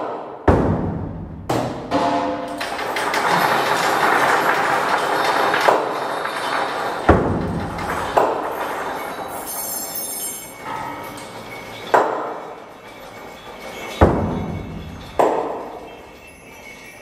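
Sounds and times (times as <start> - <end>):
sharp metal percussion strikes: 0.5 - 3.6.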